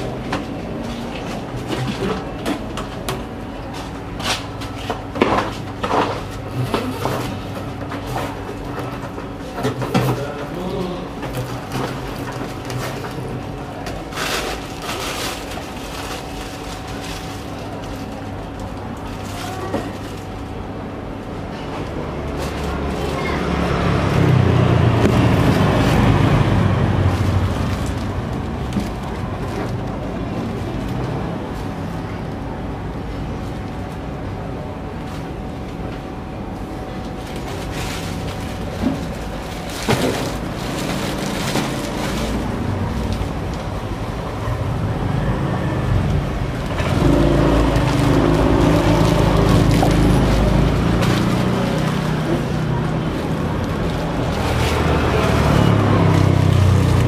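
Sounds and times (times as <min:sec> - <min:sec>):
vehicle engine passing: 0:37.9 - 0:57.0.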